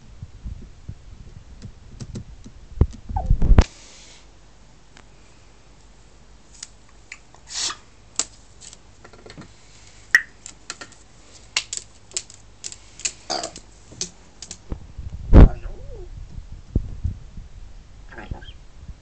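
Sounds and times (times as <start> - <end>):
parrot clicking and tapping: 11.6 - 14.6.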